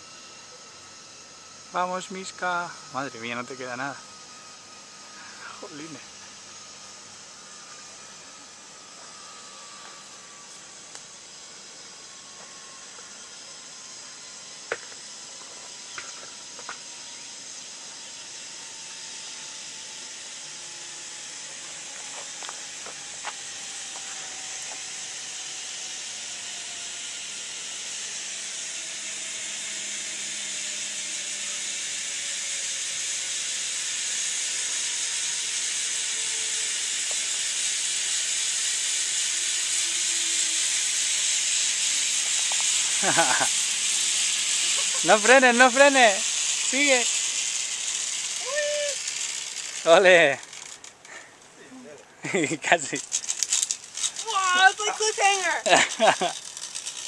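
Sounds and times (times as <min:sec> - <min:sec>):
faint whine: 0:00.0 - 0:26.7
zip-line trolley hissing on cable: 0:00.0 - 0:57.0.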